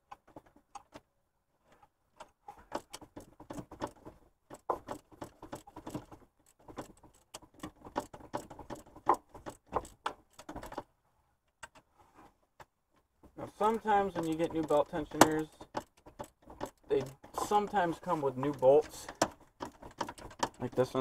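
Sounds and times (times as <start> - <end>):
ratchet clicking: 14.0 - 20.8.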